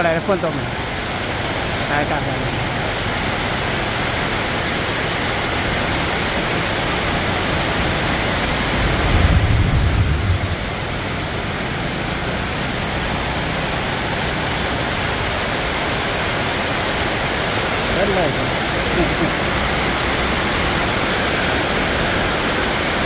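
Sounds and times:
rain on wet pavement: 0.0s - 23.0s
low rumble: 8.8s - 11.4s.

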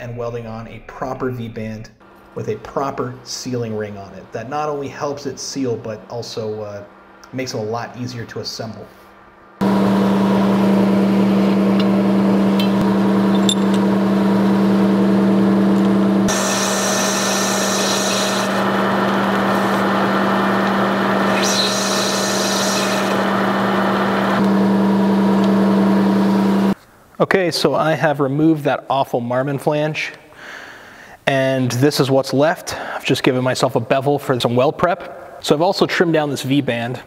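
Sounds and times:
lathe tool cutting metal: 9.6s - 26.8s
metal lathe humming: 9.6s - 26.8s.

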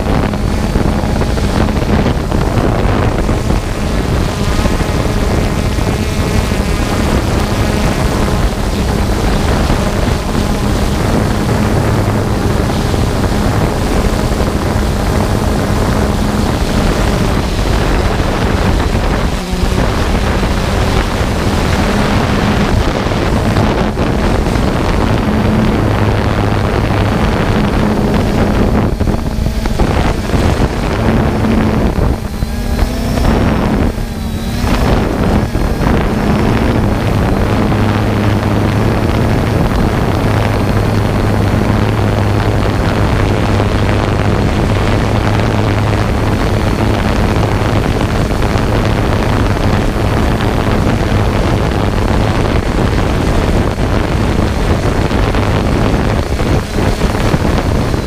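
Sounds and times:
drone propellers whirring: 0.0s - 58.0s
wind buffeting microphone: 0.0s - 58.0s.

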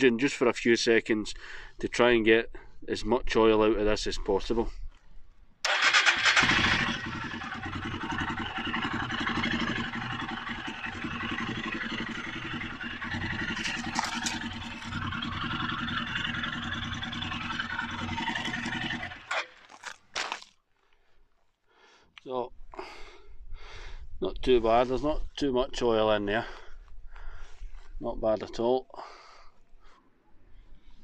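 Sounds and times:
motorcycle engine idling: 5.7s - 19.5s.

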